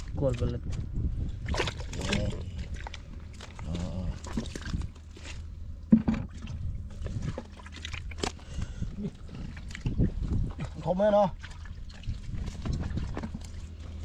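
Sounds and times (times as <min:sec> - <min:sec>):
muddy water sloshing: 0:00.0 - 0:14.0
wet slaps and knocks: 0:01.4 - 0:02.3.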